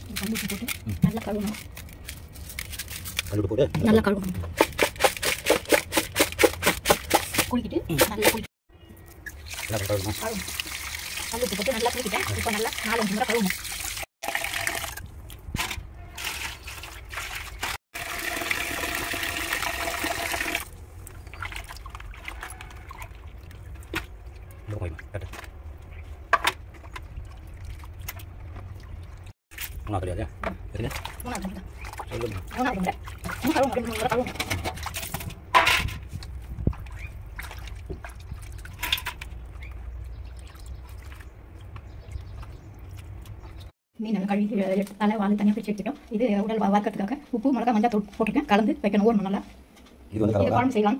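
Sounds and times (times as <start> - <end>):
water splashing in a plastic tub: 4.5 - 25.5, 26.5 - 35.2, 36.1 - 43.6
tap water pouring into bucket: 9.2 - 15.3, 16.2 - 20.7.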